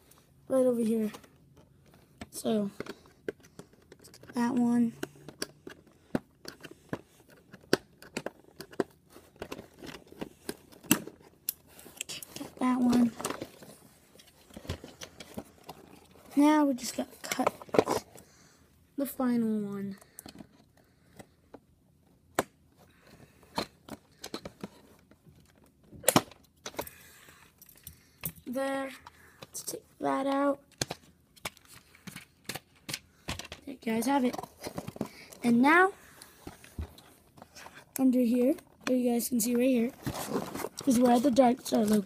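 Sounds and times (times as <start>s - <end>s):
rustling of box and plastic: 0.9s - 18.4s, 29.0s - 42.0s.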